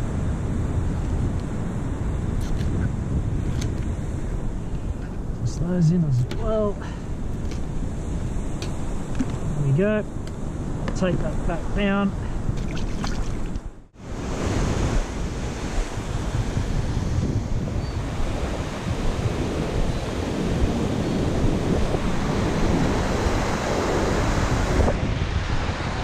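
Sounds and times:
wind buffeting microphone: 0:00.0 - 0:26.0
ocean surf breaking: 0:03.9 - 0:12.6, 0:14.0 - 0:26.0.

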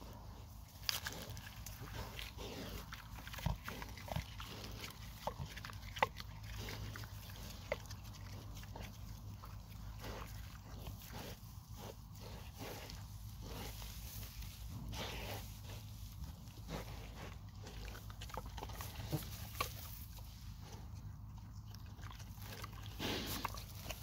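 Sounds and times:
pigs crunching eggshells: 0:00.0 - 0:24.0
pigs snuffling: 0:00.0 - 0:24.0
pig grunts: 0:21.9 - 0:24.0.

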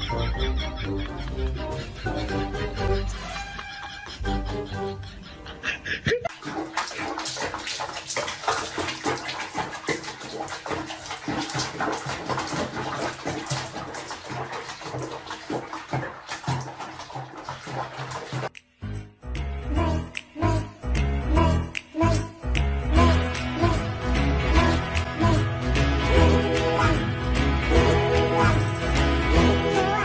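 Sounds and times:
background music: 0:00.0 - 0:06.2, 0:18.5 - 0:30.0
water splashing in a bathtub: 0:06.2 - 0:18.6, 0:22.9 - 0:30.0.

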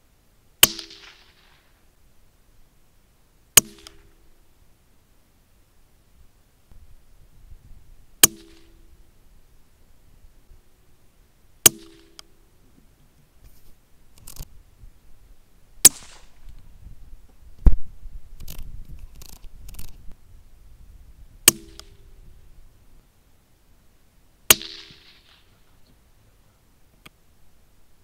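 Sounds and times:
rifle shots: 0:00.6 - 0:01.7, 0:03.6 - 0:04.1, 0:08.2 - 0:08.8, 0:11.6 - 0:12.2, 0:15.8 - 0:16.4, 0:24.5 - 0:25.5.

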